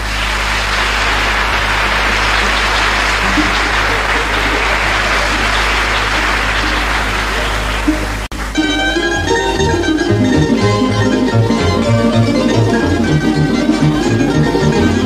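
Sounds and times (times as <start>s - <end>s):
audience applauding: 0.0s - 15.0s
low mains hum: 0.0s - 15.0s
plucked string notes: 3.2s - 15.0s.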